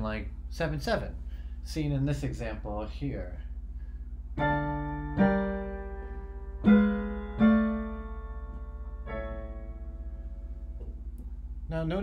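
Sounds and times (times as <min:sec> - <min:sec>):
piano chords: 0:04.3 - 0:11.2.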